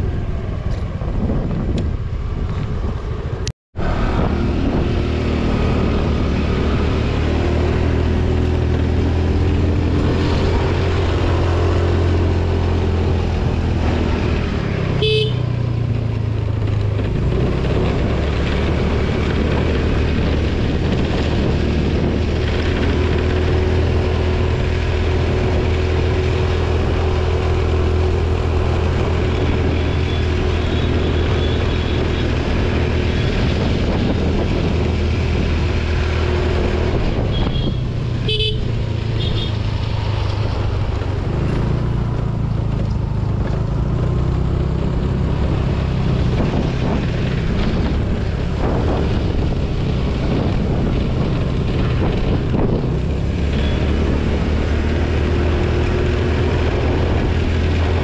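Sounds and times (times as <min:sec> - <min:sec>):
road and wind noise: 0:00.0 - 0:58.0
scooter engine hum: 0:00.0 - 0:58.0
short horn beep: 0:37.3 - 0:38.6, 0:53.6 - 0:53.9.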